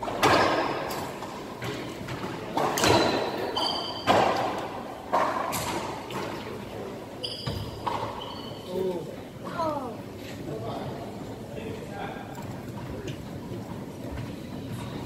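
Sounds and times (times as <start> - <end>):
ball hitting walls and floor: 0.0 - 6.4
racquet striking ball: 0.0 - 6.4
sneaker squeaks on hardwood: 7.2 - 8.7.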